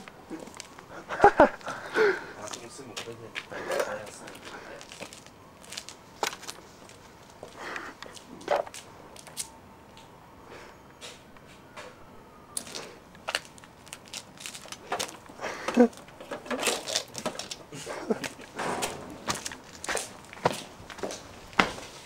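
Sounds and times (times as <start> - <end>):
objects clicking and clattering: 12.6 - 17.6.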